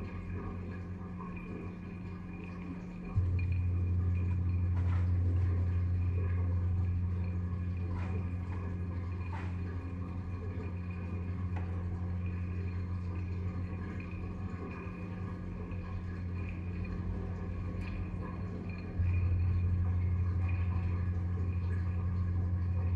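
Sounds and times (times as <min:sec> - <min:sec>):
faint steady tone: 0:00.0 - 0:22.9
low steady hum: 0:00.0 - 0:22.9.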